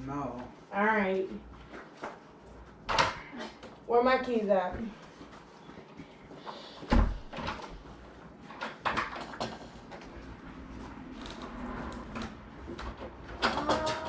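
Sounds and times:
door opening: 11.0s - 14.0s.

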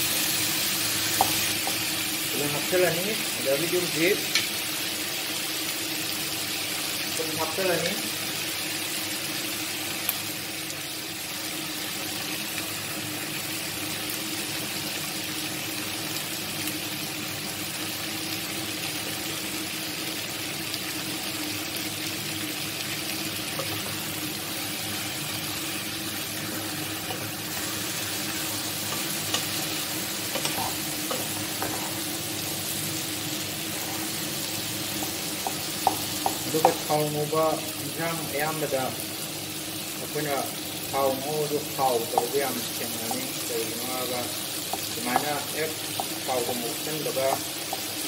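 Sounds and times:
vegetables sizzling in oil: 0.0s - 48.0s
spatula knocking against pan: 35.0s - 36.8s.

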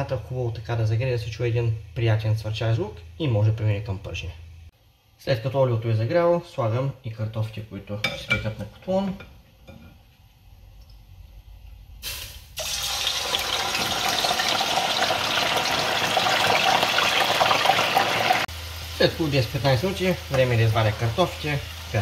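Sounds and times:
oil sizzling and bubbling: 8.4s - 22.0s.

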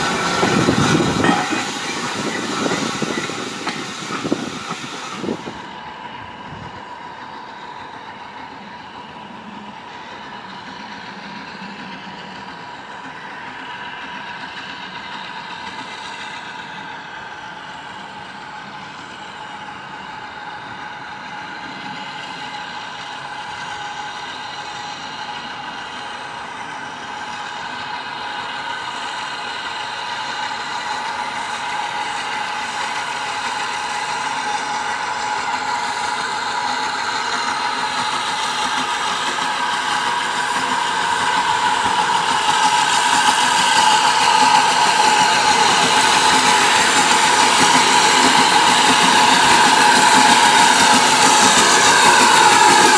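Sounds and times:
high multi-tone whine: 0.0s - 6.6s
steam locomotive running: 0.0s - 52.9s.

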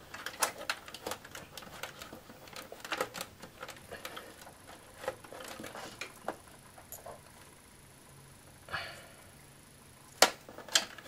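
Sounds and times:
cables rustling in metal case: 0.0s - 7.2s, 10.2s - 11.0s.

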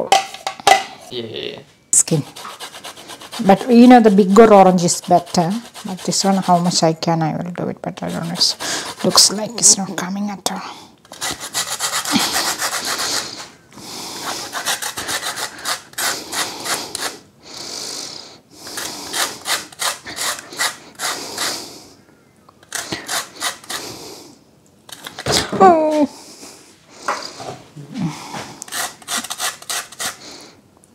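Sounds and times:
orange rubbed on metal grater: 2.1s - 7.0s, 8.0s - 9.8s, 11.2s - 13.5s, 14.2s - 17.2s, 28.7s - 30.2s.

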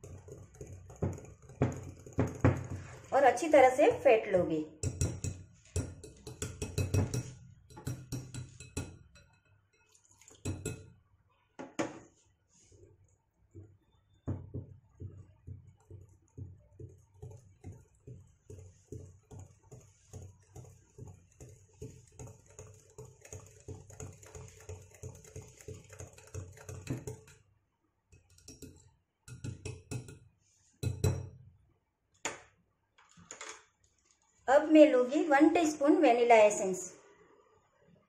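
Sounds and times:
whisk beating batter in glass bowl: 0.0s - 10.9s, 12.7s - 27.5s, 28.2s - 30.2s.

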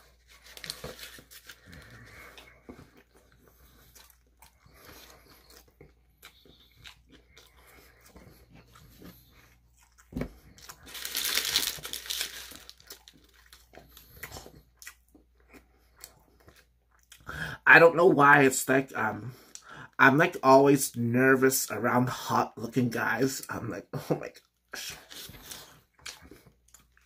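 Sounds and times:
paper wrapper rustling: 0.0s - 2.1s, 10.6s - 13.6s
wet chewing: 0.3s - 17.3s, 25.1s - 27.0s.

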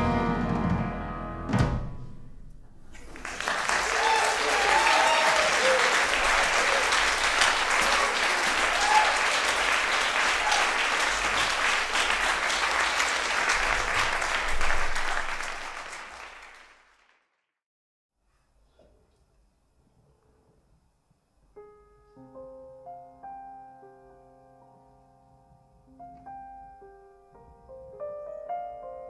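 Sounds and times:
audience applauding: 2.9s - 17.5s.

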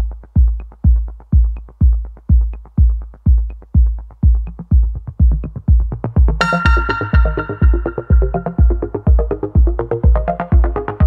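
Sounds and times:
electronic dance music: 6.3s - 11.0s.

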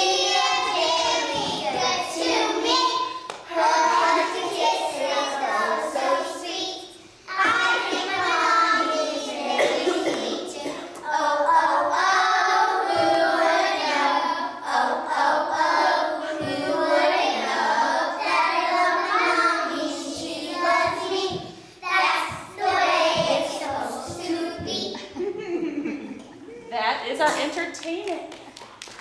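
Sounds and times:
children singing in unison: 0.0s - 25.1s.

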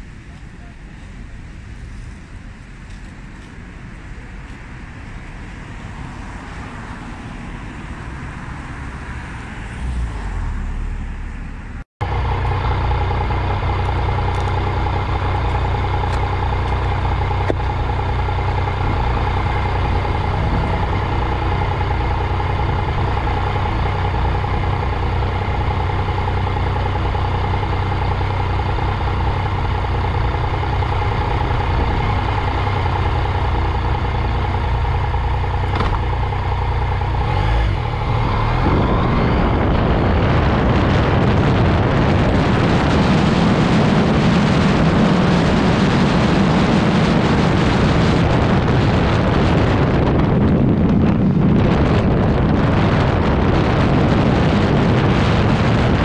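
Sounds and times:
street traffic: 0.0s - 56.0s
motorcycle engine idling: 12.0s - 37.3s.

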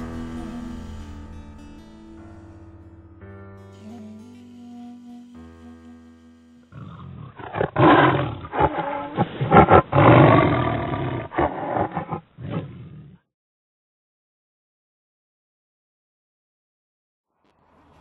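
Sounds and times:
background music: 0.0s - 9.0s.

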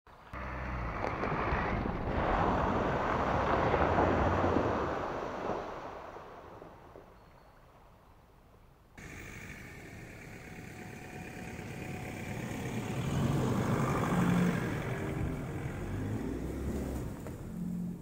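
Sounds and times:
truck engine hum: 0.1s - 4.6s, 9.0s - 18.0s
tyres splashing through mud: 0.4s - 7.2s, 9.0s - 18.0s.

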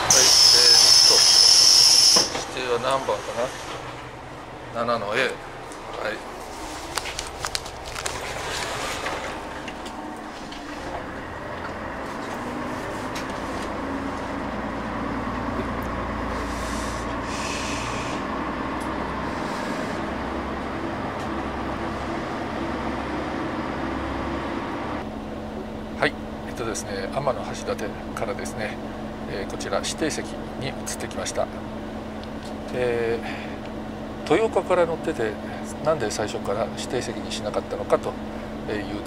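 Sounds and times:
train engine rumbling: 0.0s - 39.0s.

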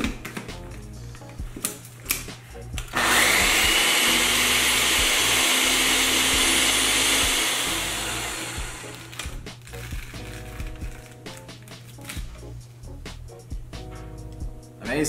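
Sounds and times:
blender motor whining: 2.8s - 9.4s.

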